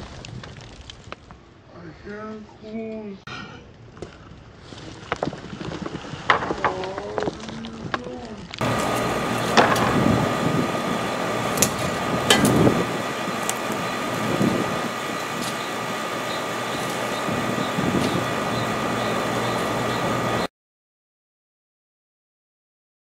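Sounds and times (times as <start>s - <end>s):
high-pitched whine: 8.6s - 20.5s
machine whirring: 8.6s - 20.5s.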